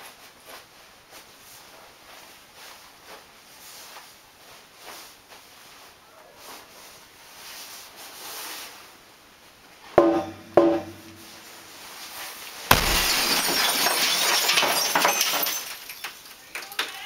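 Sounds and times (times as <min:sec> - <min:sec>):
sledgehammer blows on glass: 0:10.0 - 0:11.3, 0:12.7 - 0:16.1
glass shattering and falling: 0:12.7 - 0:16.9.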